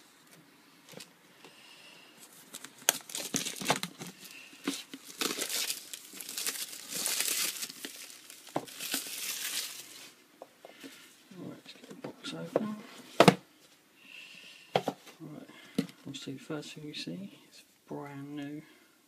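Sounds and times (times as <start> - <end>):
plastic wrap crinkling and tearing: 2.2 - 10.2.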